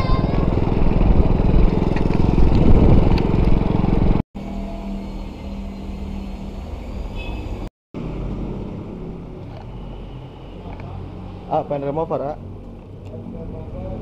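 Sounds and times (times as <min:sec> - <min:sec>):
small motorcycle engine running: 0:00.0 - 0:04.2
road noise: 0:00.0 - 0:14.0.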